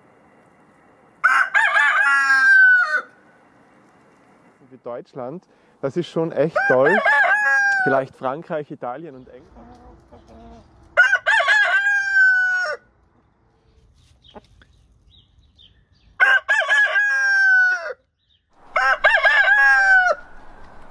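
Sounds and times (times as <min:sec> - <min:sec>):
roosters crowing: 0:01.2 - 0:03.4, 0:06.4 - 0:08.1, 0:09.6 - 0:12.9, 0:16.2 - 0:18.0, 0:18.6 - 0:20.9.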